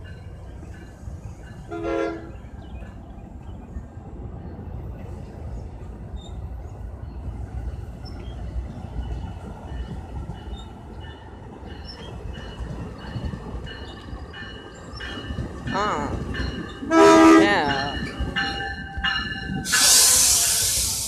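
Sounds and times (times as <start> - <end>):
train wheels rumbling on rail: 0.0 - 21.0.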